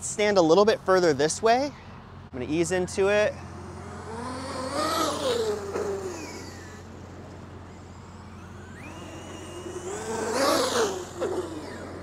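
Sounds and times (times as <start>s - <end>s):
rc truck motor whining: 2.9s - 12.0s.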